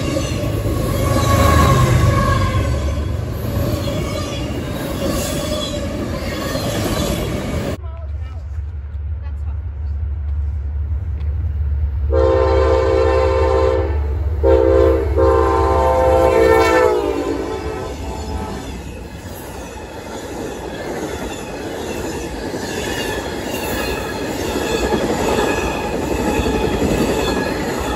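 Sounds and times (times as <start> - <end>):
train horn blasts: 0.8 - 3.1, 12.1 - 18.8
train wheels clattering on rails: 18.0 - 27.9.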